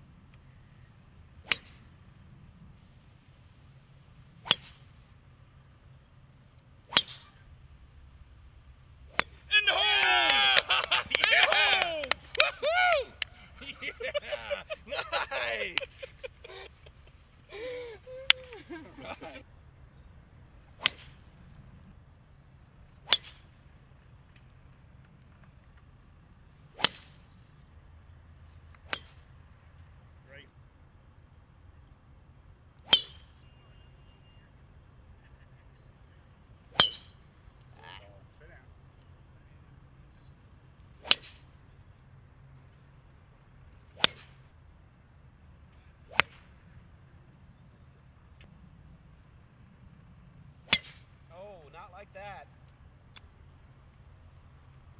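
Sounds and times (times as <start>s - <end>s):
golf club striking ball: 1.4s - 1.9s, 4.4s - 5.0s, 6.9s - 7.4s, 9.1s - 9.5s, 20.8s - 21.2s, 23.0s - 23.5s, 26.8s - 27.2s, 28.8s - 29.3s, 32.9s - 33.4s, 36.7s - 37.2s, 41.0s - 41.5s, 44.0s - 44.4s, 50.6s - 51.2s
golf driver striking ball: 50.7s - 51.1s.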